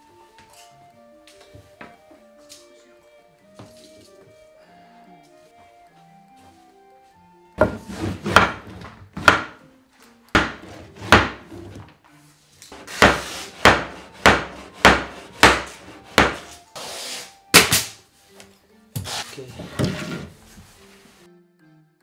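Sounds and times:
scraping rub: 0:07.6 - 0:09.0, 0:10.6 - 0:11.9, 0:12.7 - 0:17.4, 0:19.0 - 0:21.2
hammer knocking wooden boards: 0:07.6 - 0:09.6, 0:10.4 - 0:11.5, 0:12.8 - 0:16.5.

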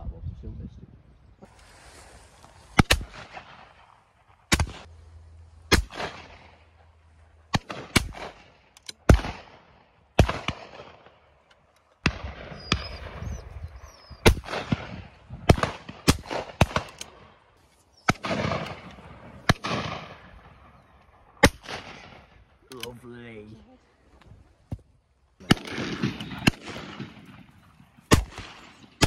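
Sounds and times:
shotguns firing with echo: 0:02.8 - 0:04.9, 0:05.7 - 0:06.8, 0:07.5 - 0:17.4, 0:18.1 - 0:22.8, 0:25.4 - 0:29.0.

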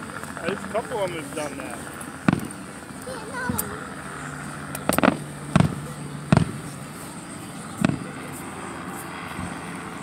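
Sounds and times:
firework shells booming: 0:02.2 - 0:02.6, 0:04.8 - 0:06.7, 0:07.8 - 0:08.1.

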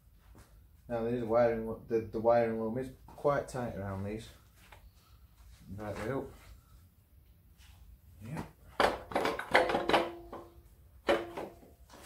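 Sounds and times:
metal compressor knocking and clunking: 0:08.7 - 0:11.7.

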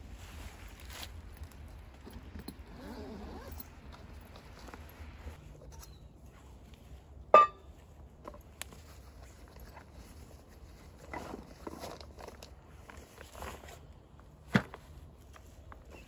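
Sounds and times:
backpack rustling: 0:00.2 - 0:05.4
metal cup knocking on wood: 0:07.4 - 0:07.6.

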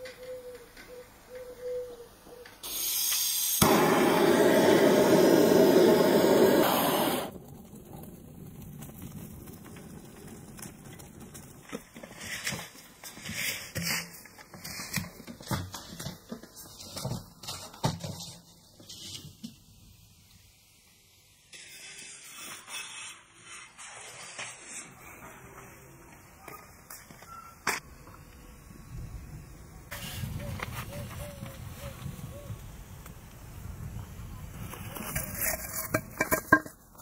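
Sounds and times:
gas torch hissing: 0:02.6 - 0:07.3
firewood crackling and knocking: 0:07.2 - 0:19.7, 0:35.6 - 0:37.0.

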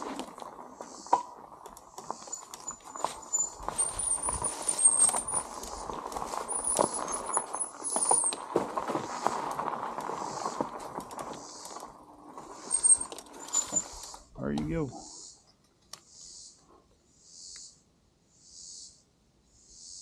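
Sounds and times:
bike rattling over bumps: 0:00.0 - 0:14.9
tyres crunching over dirt: 0:00.0 - 0:14.9.

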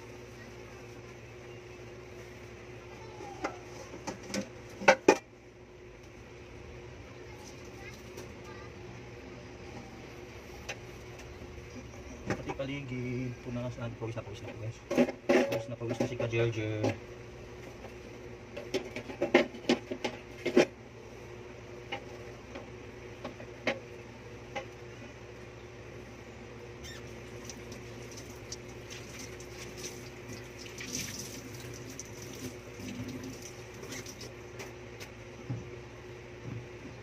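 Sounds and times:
steady low hum: 0:00.0 - 0:37.0
tap water running: 0:27.2 - 0:34.4.

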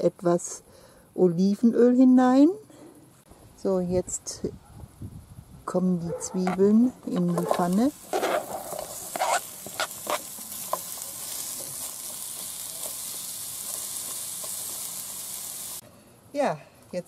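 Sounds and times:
onions sizzling in oil: 0:07.2 - 0:15.8.

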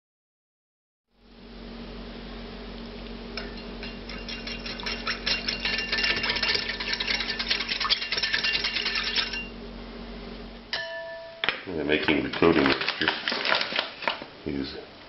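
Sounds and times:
whisk clicking against bowl: 0:03.4 - 0:09.5
faint bell-like ringing: 0:10.8 - 0:11.4.

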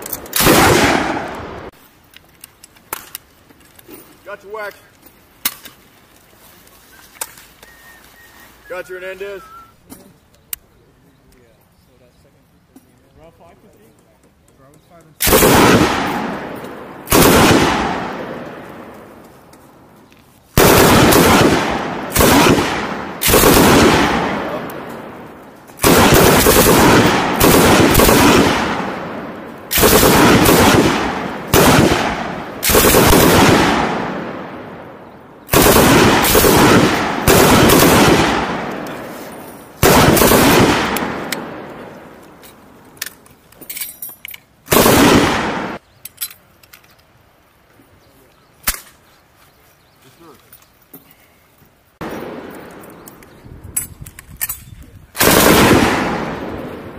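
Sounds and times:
machine gun bursts: 0:23.2 - 0:24.0, 0:35.5 - 0:38.3.

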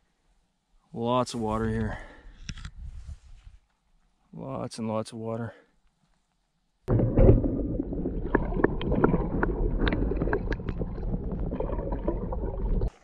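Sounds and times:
sharp clicks and pops: 0:06.9 - 0:12.9
muffled underwater water rush: 0:06.9 - 0:13.0.

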